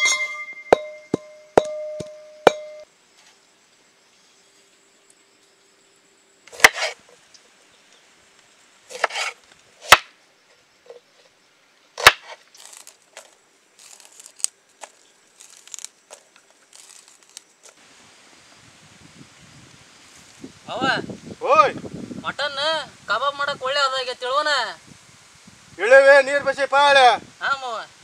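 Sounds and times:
rustling: 8.8s - 10.0s, 12.0s - 18.2s.

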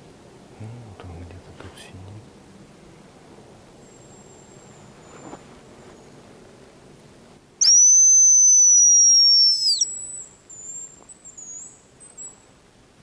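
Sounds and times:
high thin decoy whistle: 7.6s - 10.2s
high wavering twitter notes: 7.6s - 10.8s.

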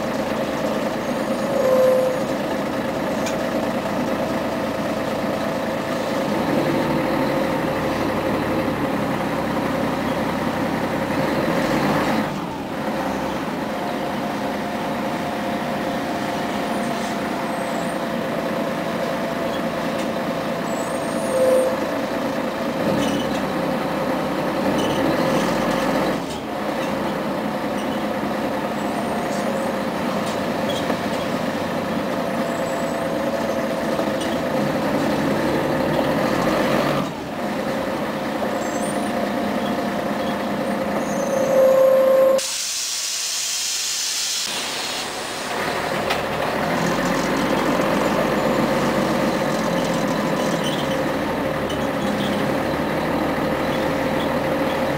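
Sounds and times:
bus diesel engine with faint whine: 0.0s - 54.9s
compressed air hiss: 42.4s - 45.6s.

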